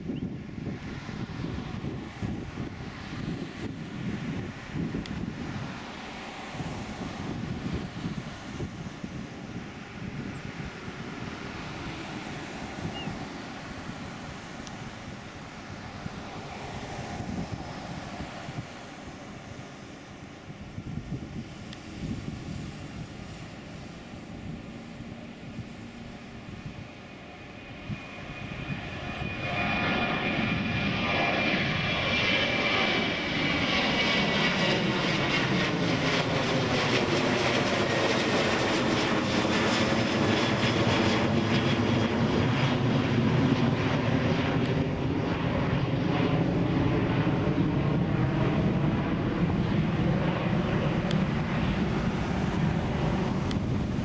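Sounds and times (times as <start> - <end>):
high jet whine falling in pitch: 0.0 - 54.0
jet engines roaring: 0.0 - 54.0.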